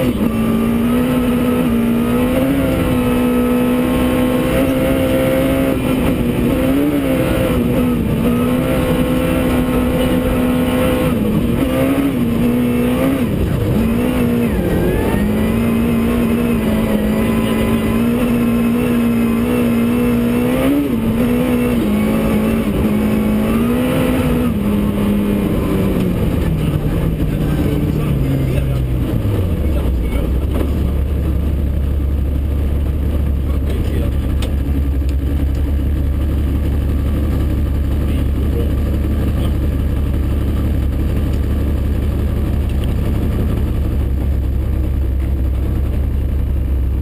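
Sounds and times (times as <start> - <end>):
rally car engine revving: 0.0 - 47.0.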